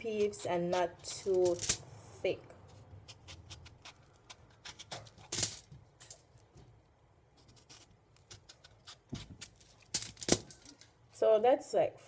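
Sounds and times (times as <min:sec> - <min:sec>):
knife cutting plantain: 0:00.0 - 0:01.6, 0:02.6 - 0:05.7, 0:07.4 - 0:10.4.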